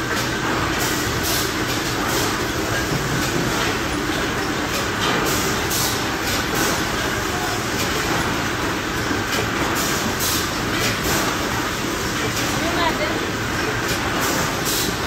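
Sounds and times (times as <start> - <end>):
conveyor belts and machinery running: 0.0 - 15.0.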